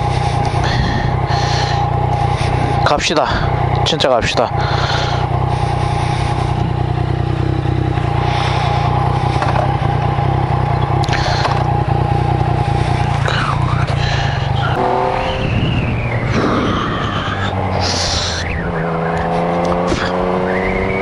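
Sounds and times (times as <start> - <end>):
motorcycle engine running: 0.0 - 21.0
rushing noise: 12.4 - 19.2.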